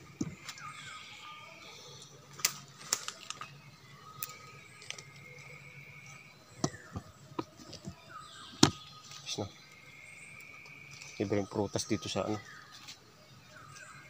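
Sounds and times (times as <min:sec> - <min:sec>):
fruit stems snapping: 0:02.3 - 0:03.5.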